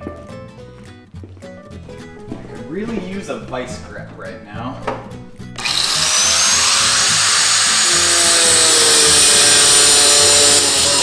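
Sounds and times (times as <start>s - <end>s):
angle grinder cutting metal: 5.6s - 11.0s.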